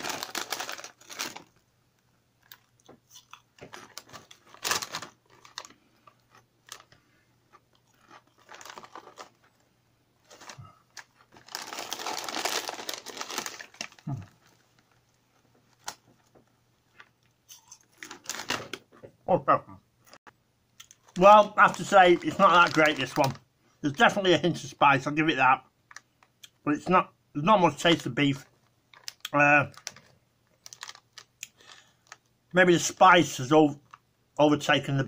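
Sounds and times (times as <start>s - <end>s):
crisp bag rustling: 0.0s - 1.6s, 3.6s - 7.0s, 7.8s - 9.6s, 10.2s - 15.0s, 17.9s - 18.8s, 21.0s - 24.0s, 28.9s - 32.2s
crisps being crunched and chewed: 0.0s - 1.6s, 2.4s - 9.6s, 10.2s - 14.7s, 16.9s - 18.8s, 28.9s - 32.3s.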